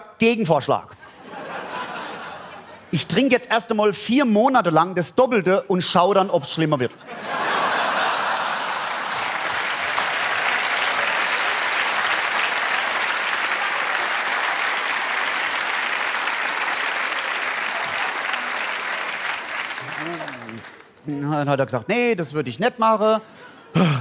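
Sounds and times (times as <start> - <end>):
audience applauding: 7.4 - 21.0.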